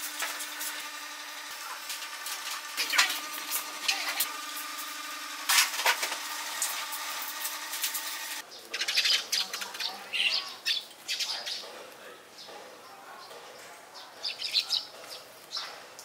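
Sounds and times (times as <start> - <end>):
steady hum: 0.0 - 8.4
small birds chirping: 8.4 - 15.8.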